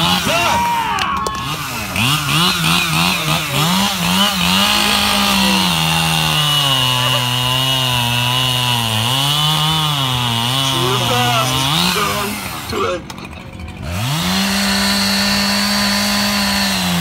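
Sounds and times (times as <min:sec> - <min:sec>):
chainsaw revving and cutting: 0:00.0 - 0:00.6, 0:01.2 - 0:17.0.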